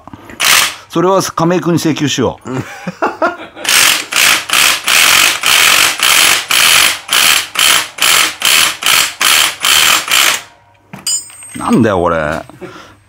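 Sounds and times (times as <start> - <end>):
ratchet wrench rasping: 0.4 - 0.7, 3.7 - 10.5.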